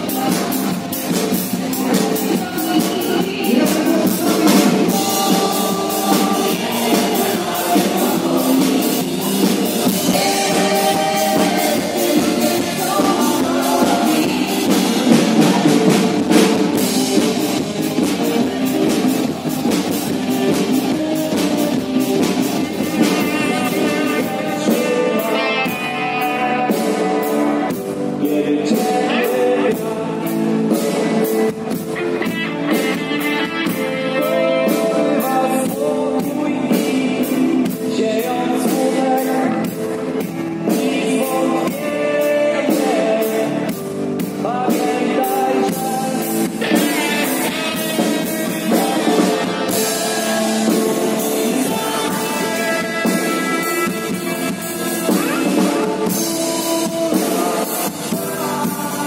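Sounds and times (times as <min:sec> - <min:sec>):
guitar: 0:00.0 - 0:59.0
person singing: 0:00.0 - 0:59.0
drum beat: 0:00.1 - 0:24.6.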